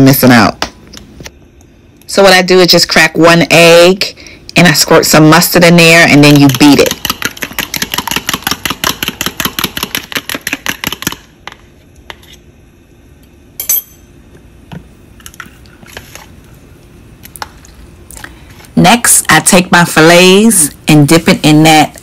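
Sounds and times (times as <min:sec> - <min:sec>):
fork beating eggs in plastic bowl: 0:05.6 - 0:12.4.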